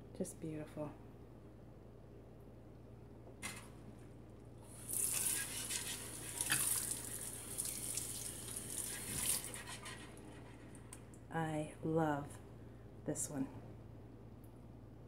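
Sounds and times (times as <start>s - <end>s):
tap water splashing into sink: 6.3s - 9.5s.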